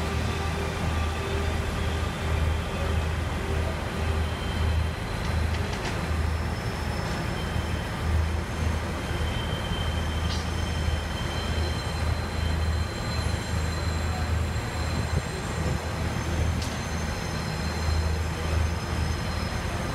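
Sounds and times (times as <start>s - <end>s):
train wheels rolling on rails: 0.0s - 19.9s
wheels squealing: 4.2s - 19.9s.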